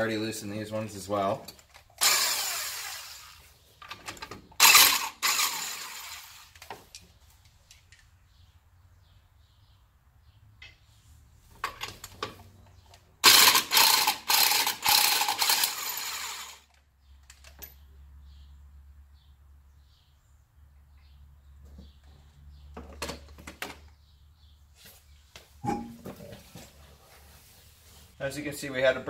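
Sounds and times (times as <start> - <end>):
impact gun spinning lug nuts: 1.9 - 3.4, 4.0 - 6.7, 13.2 - 16.7.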